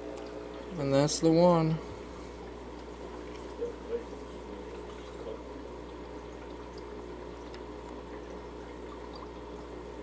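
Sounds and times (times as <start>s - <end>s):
aquarium filter water trickling: 0.0s - 10.0s
low constant hum: 0.0s - 10.0s.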